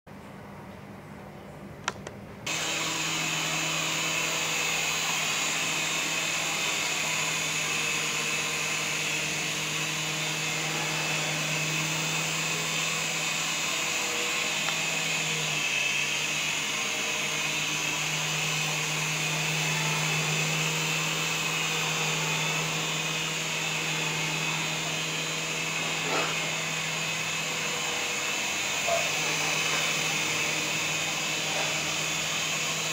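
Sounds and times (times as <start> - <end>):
toy helicopter motors whining: 2.5 - 32.9.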